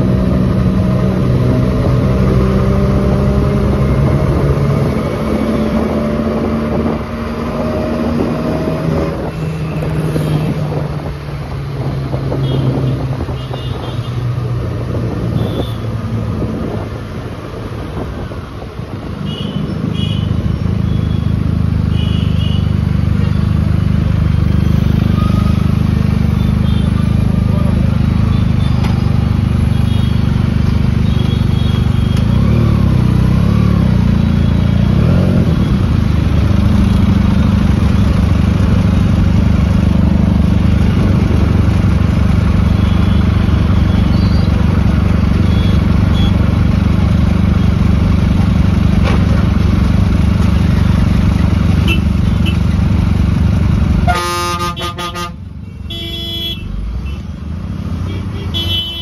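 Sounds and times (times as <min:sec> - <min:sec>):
vehicle engines idling: 0:17.9 - 0:59.0
vehicle horn honks: 0:51.8 - 0:52.6, 0:54.0 - 0:57.2, 0:58.1 - 0:59.0.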